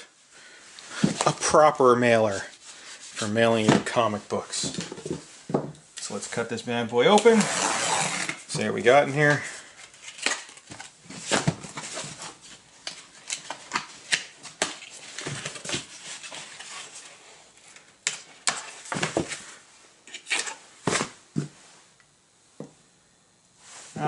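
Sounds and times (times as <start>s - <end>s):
cardboard being cut and pried open: 7.4s - 8.4s.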